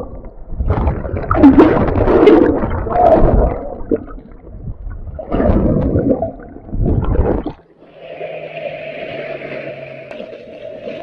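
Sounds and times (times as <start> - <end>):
muffled underwater surf surging: 0.0 - 11.0
water lapping hiss: 7.7 - 11.0.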